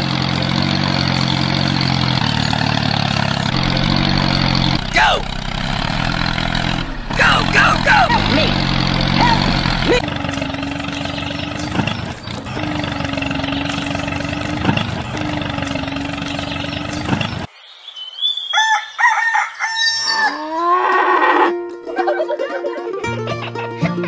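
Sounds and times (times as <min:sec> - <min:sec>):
toy tractor engine running: 0:00.0 - 0:17.5
farm animal calls: 0:06.8 - 0:17.5, 0:18.4 - 0:21.5
rooster crowing: 0:18.5 - 0:20.7.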